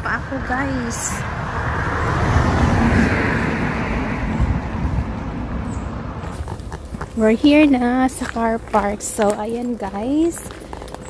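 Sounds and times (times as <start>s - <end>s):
car driving past: 0.2s - 7.0s.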